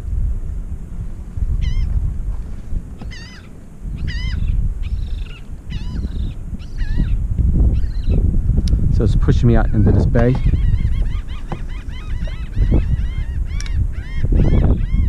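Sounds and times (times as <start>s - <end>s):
wind buffeting microphone: 0.0s - 15.0s
waterbird calling: 1.6s - 1.9s, 3.0s - 8.2s, 9.5s - 15.0s.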